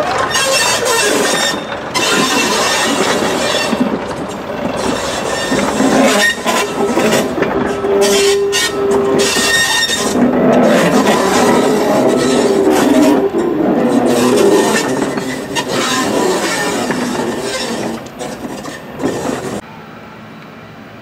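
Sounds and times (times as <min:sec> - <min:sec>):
metallic wheel squeals: 0:00.0 - 0:19.6
train wheels clattering over rail joints: 0:00.0 - 0:19.6.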